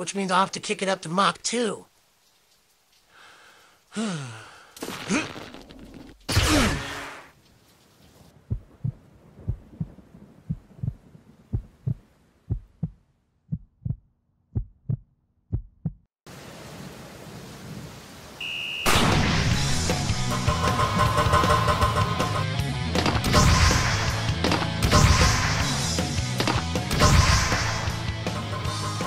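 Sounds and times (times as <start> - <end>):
steady rain: 0.6 - 5.8, 16.3 - 20.0
heartbeat thumps: 8.4 - 16.1.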